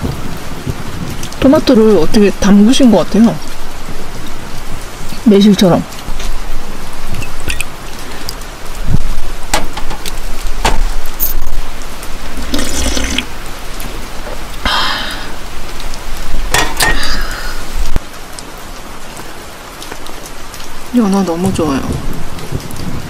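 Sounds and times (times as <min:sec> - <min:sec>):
steady rain: 0:00.0 - 0:23.0
sharp knocks: 0:10.6 - 0:10.9
liquid pouring into metal cup: 0:12.4 - 0:13.3.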